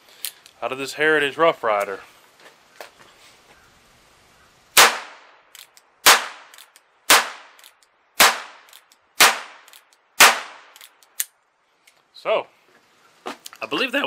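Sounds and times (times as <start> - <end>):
revolver shots cracking: 4.8 - 5.4, 6.0 - 7.6, 8.2 - 10.9.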